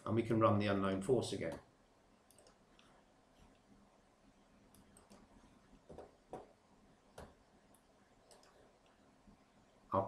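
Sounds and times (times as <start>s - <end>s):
faint mouse clicks: 2.3s - 3.7s, 4.7s - 6.5s, 7.1s - 9.0s.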